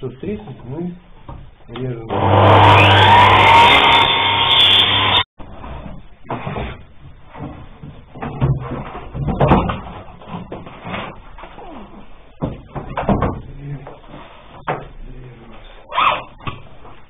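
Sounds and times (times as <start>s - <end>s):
miter saw cutting: 2.1s - 5.3s.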